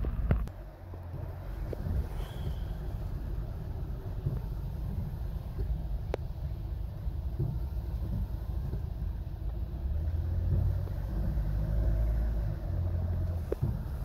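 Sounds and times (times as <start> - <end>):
car interior driving rumble: 0.0 - 14.0.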